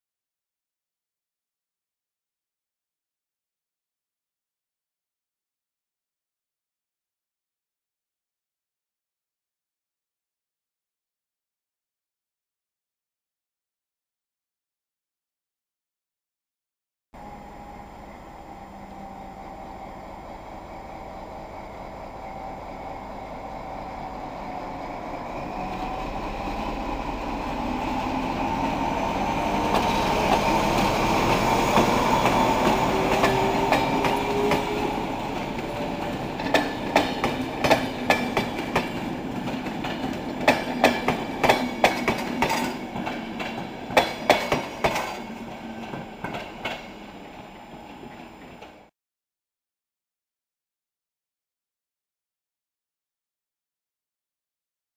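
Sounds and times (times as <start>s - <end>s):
diesel locomotive engine running: 17.2s - 44.0s
train wheels clacking over rail joints: 29.7s - 46.9s.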